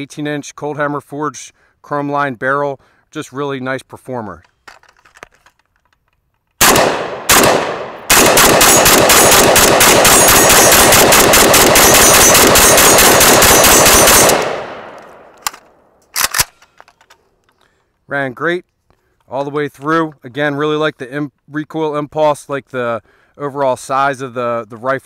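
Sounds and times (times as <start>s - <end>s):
rifle shots: 6.6s - 16.5s.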